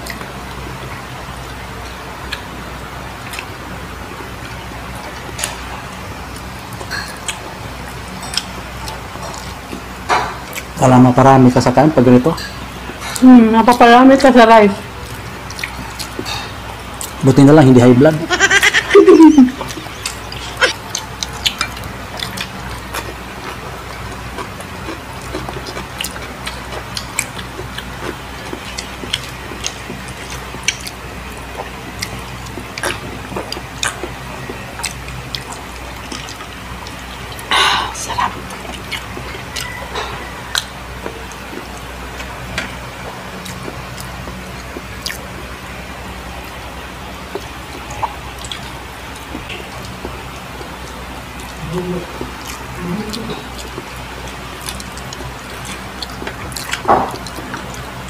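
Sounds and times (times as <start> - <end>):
chewing and mouth clicks: 0.0 - 2.5, 4.4 - 10.8, 15.0 - 17.2, 19.4 - 45.8, 46.4 - 58.0
steady low hum: 0.0 - 58.0
low murmurs: 51.1 - 54.6.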